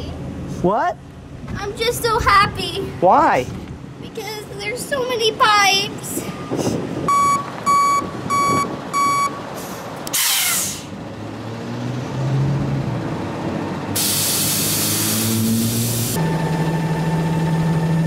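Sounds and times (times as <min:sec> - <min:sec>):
truck reversing alarm beeping: 0:07.0 - 0:10.8, 0:14.0 - 0:18.0
air brakes hissing: 0:09.5 - 0:11.0, 0:14.0 - 0:16.2.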